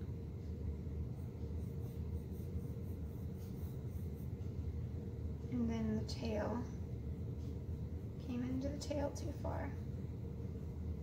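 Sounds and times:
paintbrush rubbing on canvas: 0:01.0 - 0:04.9.

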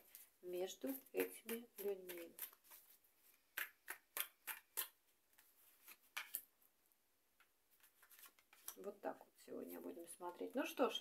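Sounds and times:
cards clicking and slapping: 0:01.2 - 0:06.5.

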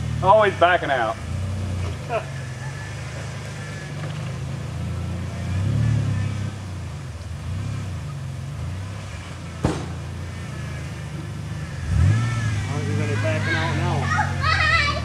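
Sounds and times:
suv engine revving: 0:00.0 - 0:15.0
sharp knock: 0:09.6 - 0:10.0.

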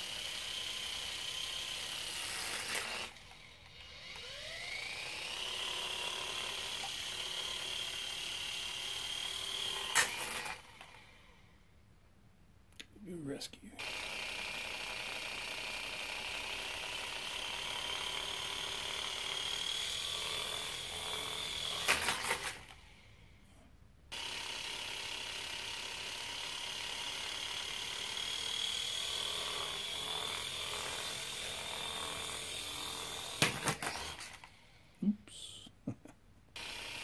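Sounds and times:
toy helicopter clattering: 0:00.0 - 0:11.1, 0:17.3 - 0:23.0, 0:26.8 - 0:34.6
toy helicopter rotors whining: 0:00.0 - 0:11.5, 0:13.8 - 0:23.2, 0:24.1 - 0:35.6, 0:36.6 - 0:37.0.

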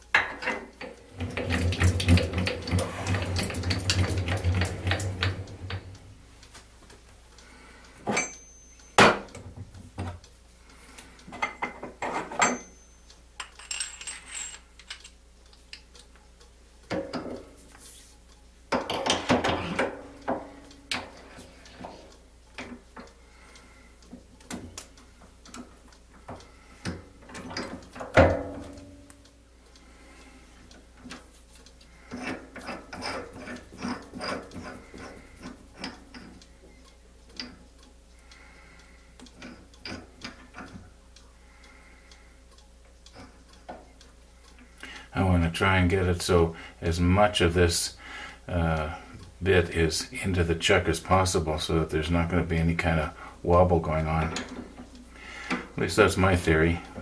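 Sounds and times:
metal tools clinking and clattering: 0:08.1 - 0:09.0, 0:11.4 - 0:15.2.

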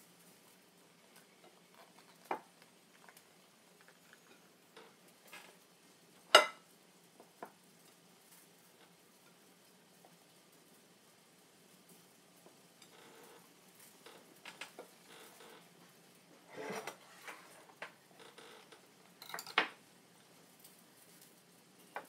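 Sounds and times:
knife and plates clinking: 0:06.3 - 0:06.6, 0:19.2 - 0:19.7.

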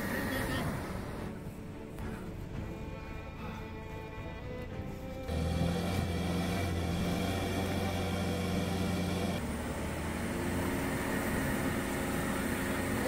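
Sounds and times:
vehicle engine revving under load: 0:05.2 - 0:13.0.

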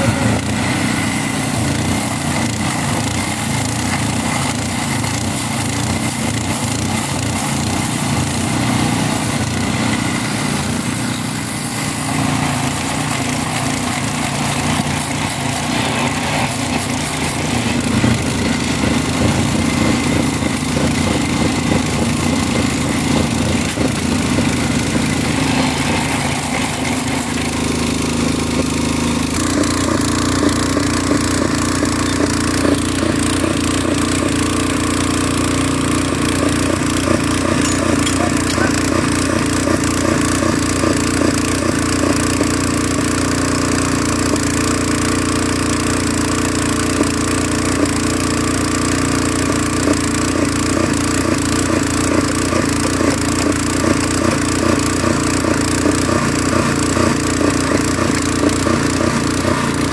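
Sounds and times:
disc grinding steel rail: 0:00.0 - 0:42.4
small engine machine running: 0:00.0 - 0:59.9
small petrol engine running: 0:00.0 - 0:59.9.

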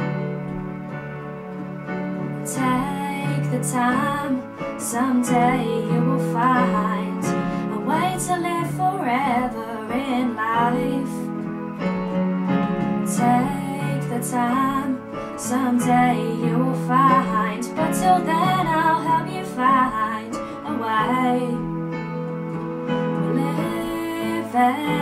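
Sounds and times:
sustained keyboard chords: 0:00.0 - 0:25.0
woman singing: 0:02.4 - 0:11.5, 0:13.0 - 0:21.8, 0:23.1 - 0:25.0.

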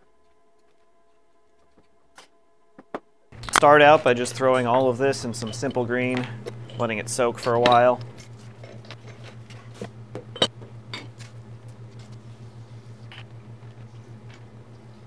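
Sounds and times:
steady low hum: 0:00.0 - 0:15.0
metal parts clinking: 0:03.4 - 0:09.4.

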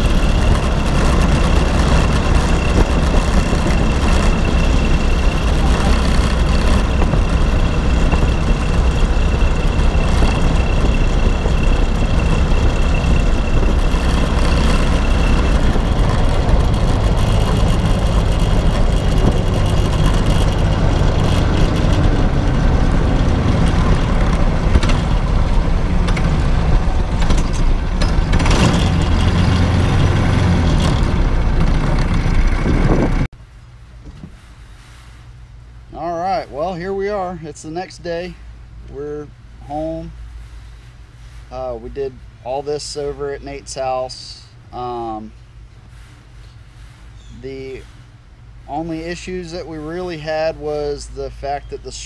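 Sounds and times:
go-kart engine running: 0:00.0 - 0:33.3.

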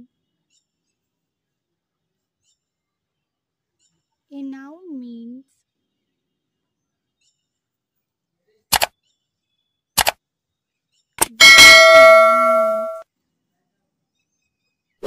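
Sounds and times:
sharp clicks: 0:08.7 - 0:08.9, 0:10.0 - 0:10.2, 0:11.2 - 0:11.4
bell ding: 0:11.2 - 0:13.0.

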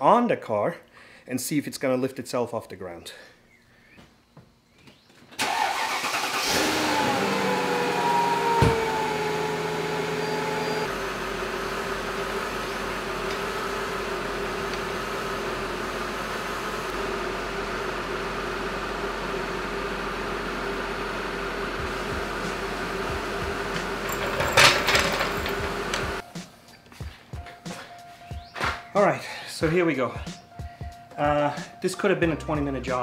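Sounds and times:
car engine starting and idling: 0:05.4 - 0:26.2.

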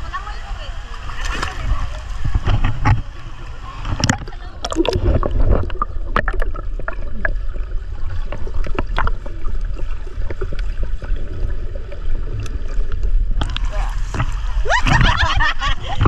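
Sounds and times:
water splashing and sloshing: 0:00.0 - 0:16.0
low rumble: 0:01.6 - 0:16.0.

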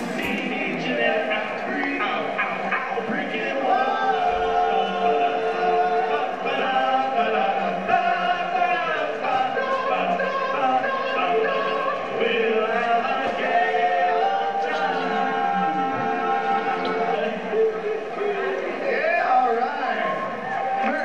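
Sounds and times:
men singing together: 0:00.0 - 0:17.8.

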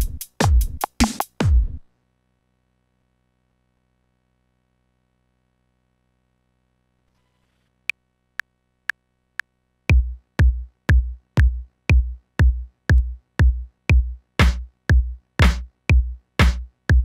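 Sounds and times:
kick drum beat: 0:00.0 - 0:01.8, 0:09.9 - 0:17.0
metronome ticks: 0:07.9 - 0:16.1.

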